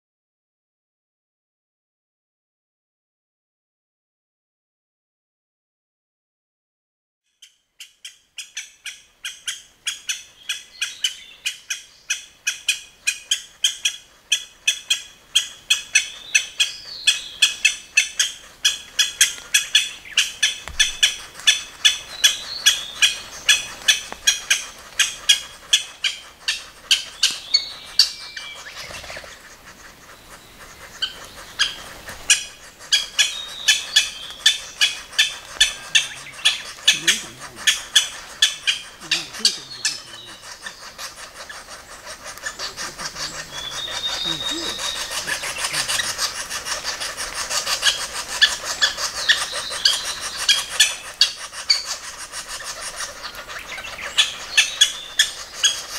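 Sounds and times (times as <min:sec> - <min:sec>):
nestlings begging chirps: 0:09.2 - 0:55.9.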